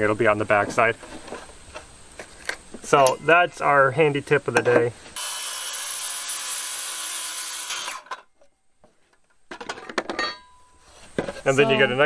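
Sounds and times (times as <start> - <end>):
circular saw cutting board: 5.2 - 8.2.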